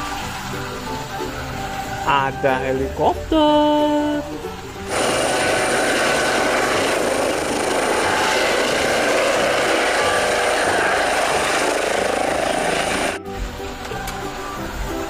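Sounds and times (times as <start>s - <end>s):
helicopter hovering: 4.9s - 13.2s.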